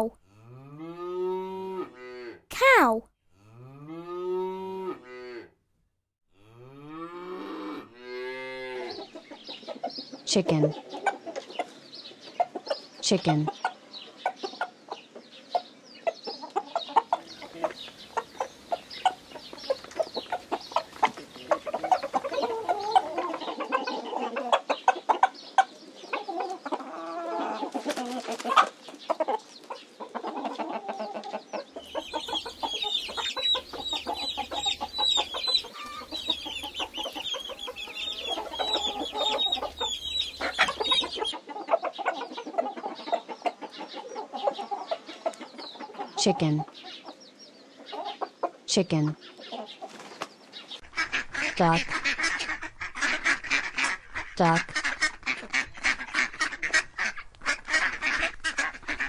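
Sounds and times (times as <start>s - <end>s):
hens clucking: 16.0s - 47.2s, 50.8s - 59.0s.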